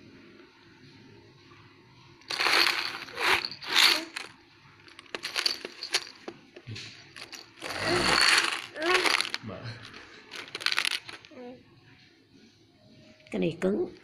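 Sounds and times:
plastic toy rattling: 0:02.3 - 0:04.3, 0:04.9 - 0:06.3, 0:07.1 - 0:11.3.

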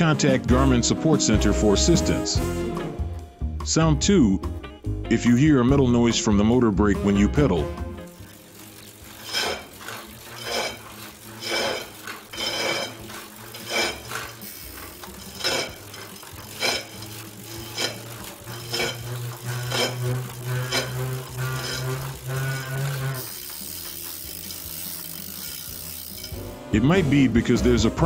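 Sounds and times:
trainer metallic clanking: 0:08.2 - 0:23.5.

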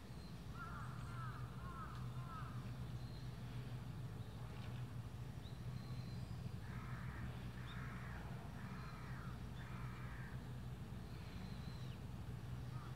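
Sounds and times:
steady low hum: 0:00.0 - 0:12.9
crow cawing: 0:00.6 - 0:02.5, 0:06.6 - 0:10.4.

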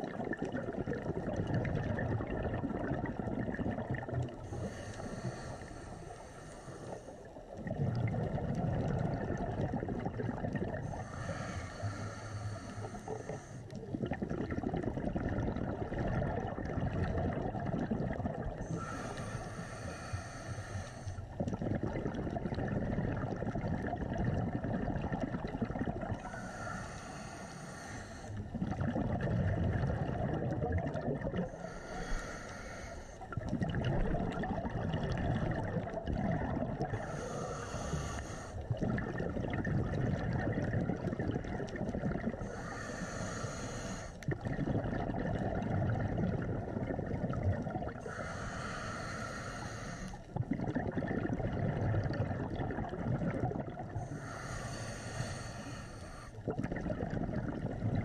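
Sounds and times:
exhaled bubbles rushing: 0:00.0 - 0:05.7, 0:06.8 - 0:20.1, 0:21.2 - 0:27.5, 0:28.1 - 0:49.6, 0:50.2 - 0:54.4, 0:55.8 - 0:58.0
regulator hissing inhales: 0:04.4 - 0:07.3, 0:10.8 - 0:13.8, 0:18.6 - 0:21.4, 0:26.2 - 0:28.5, 0:31.5 - 0:33.4, 0:37.0 - 0:38.6, 0:42.4 - 0:44.2, 0:48.0 - 0:50.3, 0:54.0 - 0:56.5.

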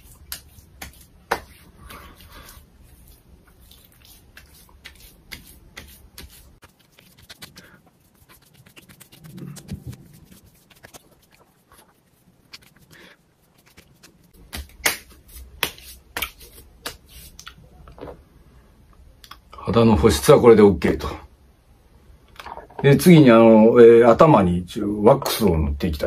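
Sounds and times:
hands patting skin: 0:00.0 - 0:17.6.

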